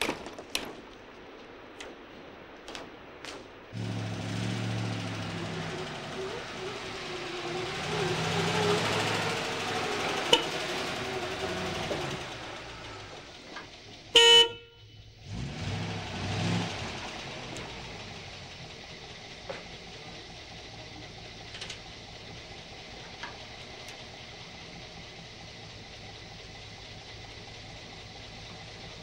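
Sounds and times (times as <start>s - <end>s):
bus engine running: 1.2s - 29.0s
bus horn honk: 10.0s - 11.7s, 14.1s - 15.0s.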